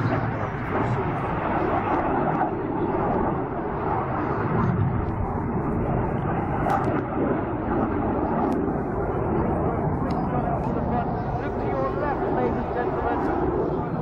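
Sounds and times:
jet flying by: 0.0 - 14.0.

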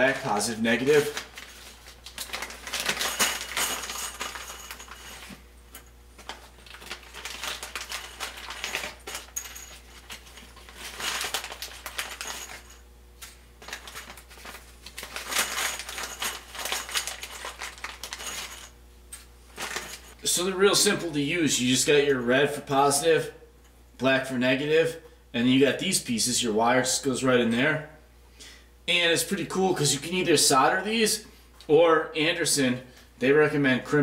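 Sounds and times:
plastic bag crinkling: 0.0 - 5.4, 6.2 - 18.8, 19.5 - 20.2
plastic and metal parts rattling: 1.0 - 5.4, 6.2 - 12.8, 13.6 - 18.7, 19.6 - 20.2.

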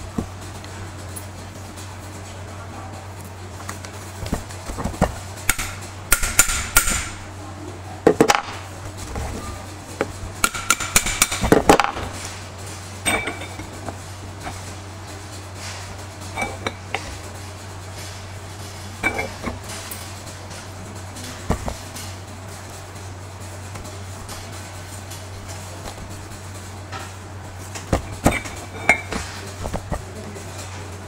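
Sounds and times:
metal-on-metal clinks and knocks: 13.0 - 14.6.

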